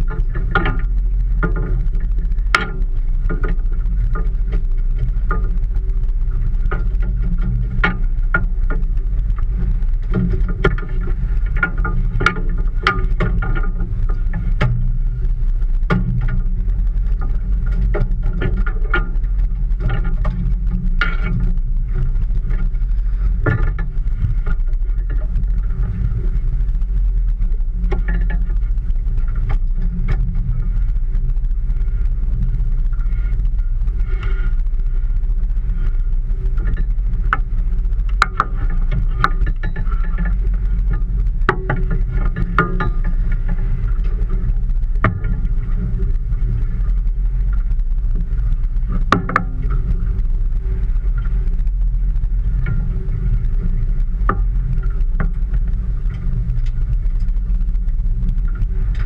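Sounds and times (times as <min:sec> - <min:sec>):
boat engine humming: 0:00.0 - 0:59.0.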